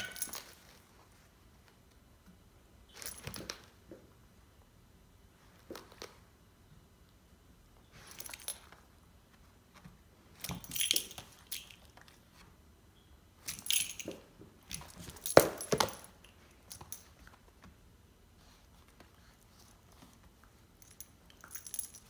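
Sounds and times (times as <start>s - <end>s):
dog tags jingling: 0.0s - 0.6s, 10.4s - 12.0s, 13.4s - 17.1s.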